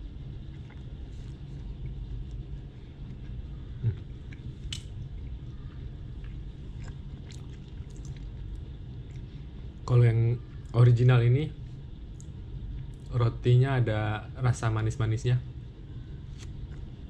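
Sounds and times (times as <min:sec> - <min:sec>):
man chewing bread: 0:00.0 - 0:09.8
steady low hum: 0:00.0 - 0:17.0.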